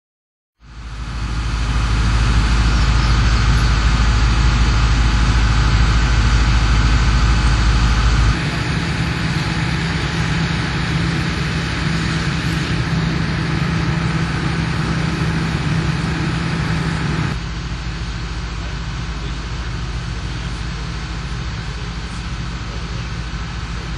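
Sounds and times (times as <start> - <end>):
diesel engine idling: 0.6 - 23.9.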